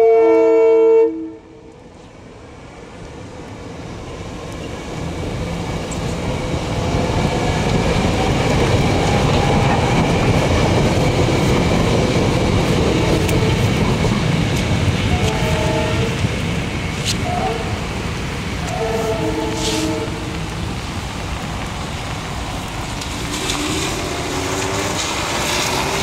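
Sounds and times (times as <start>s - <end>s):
train horn chord: 0.0s - 1.6s, 15.1s - 16.2s, 18.6s - 20.5s
train rumbling on rails: 0.0s - 26.0s.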